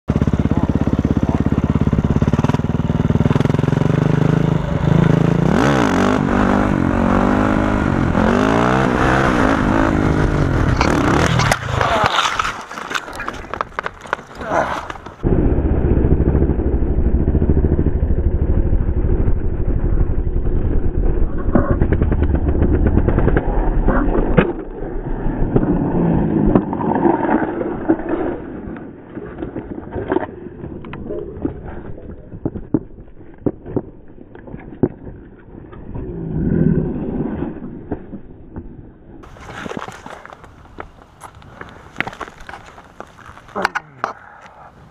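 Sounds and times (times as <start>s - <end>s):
dirt bike engine running hard: 0.1s - 12.0s, 15.2s - 24.0s
motorcycle crash: 9.6s - 30.8s
scraping and clattering on asphalt: 10.1s - 15.3s, 20.8s - 44.9s.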